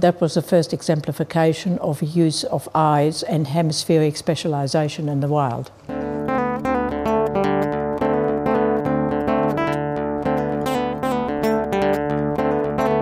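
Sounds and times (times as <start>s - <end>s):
acoustic guitar picking: 5.9s - 13.0s.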